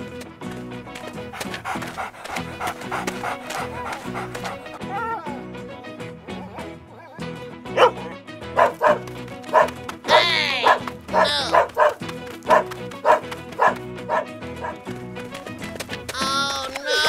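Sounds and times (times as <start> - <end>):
background music: 0.0 - 17.0
dog barking: 1.4 - 4.8, 7.7 - 14.9
dog yelping: 2.0 - 4.8, 7.7 - 14.8, 16.8 - 17.0.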